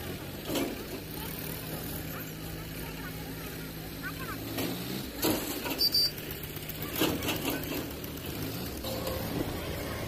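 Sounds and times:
diesel tractor engine idling: 5.1s - 10.0s.

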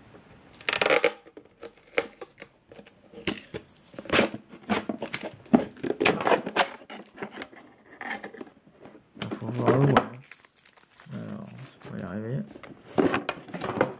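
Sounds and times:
adhesive tape ripping: 0.6s - 2.1s.

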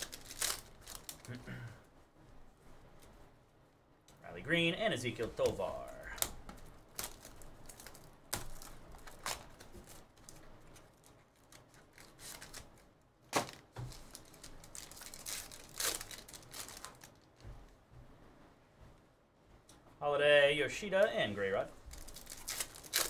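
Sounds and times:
card packs tearing and crinkling: 0.0s - 1.4s, 5.2s - 17.3s, 21.9s - 23.0s.

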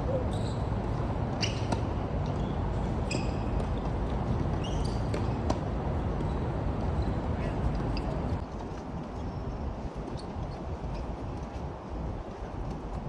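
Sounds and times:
steady background noise: 0.0s - 13.0s
tennis balls bouncing and struck: 0.8s - 7.1s
short high squeaks: 2.4s - 3.5s.

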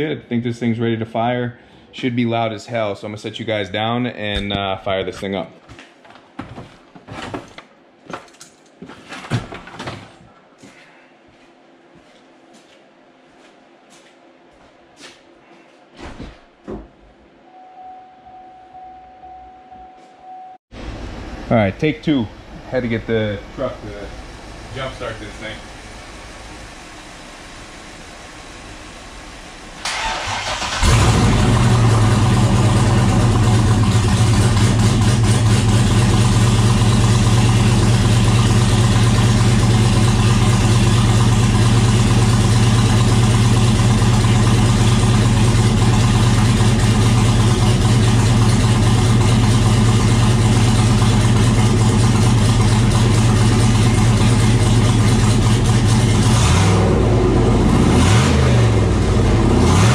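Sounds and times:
car engine cranking and idling: 20.8s - 59.9s.

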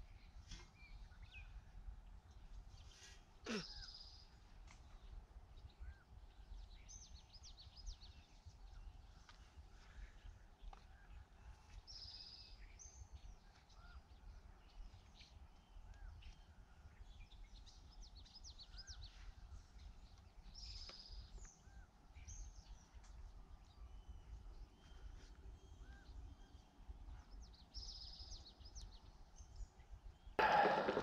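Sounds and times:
buzzy bird song phrase: 0.0s - 9.0s, 23.7s - 31.0s.

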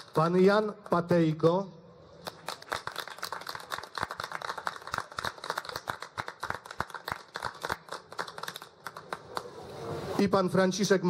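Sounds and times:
audience applause: 2.2s - 9.5s.

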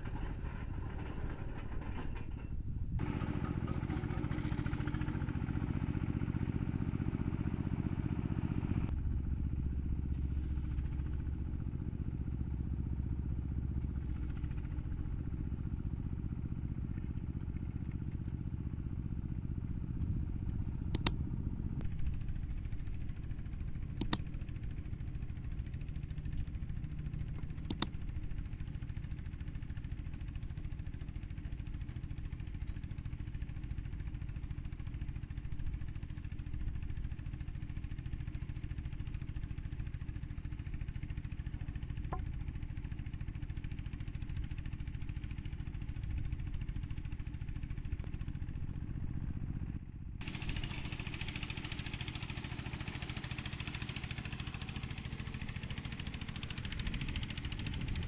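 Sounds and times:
winch engine running: 50.2s - 58.0s.

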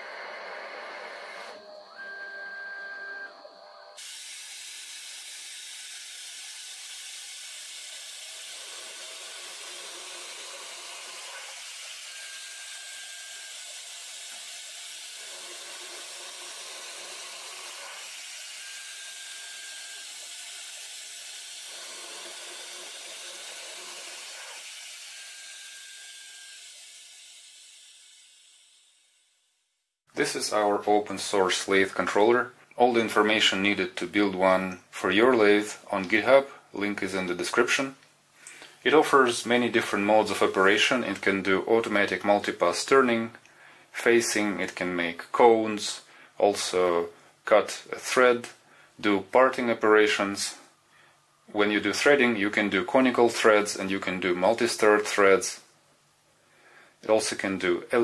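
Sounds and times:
lathe cutting steel: 4.0s - 29.1s.

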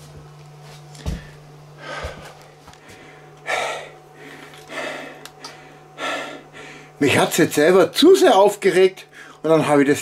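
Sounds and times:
man breathing heavily and sighing: 1.0s - 7.0s.

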